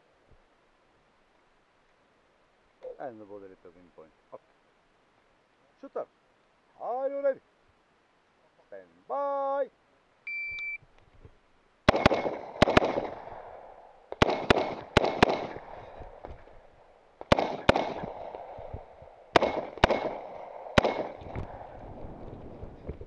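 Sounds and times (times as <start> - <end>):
rifle shots with echo: 11.9 - 16.5, 17.2 - 21.8.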